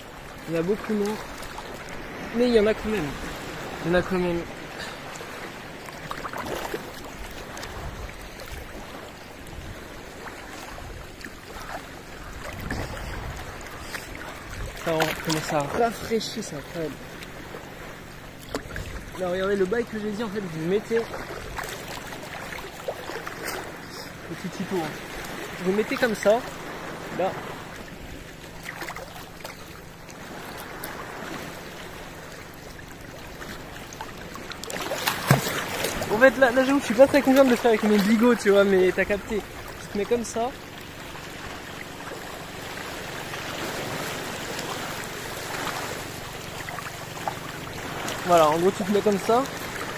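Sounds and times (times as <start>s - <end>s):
faint splashes: 0.0s - 49.9s
sea water sloshing and lapping: 0.0s - 49.9s
small waves washing ashore: 0.0s - 49.9s.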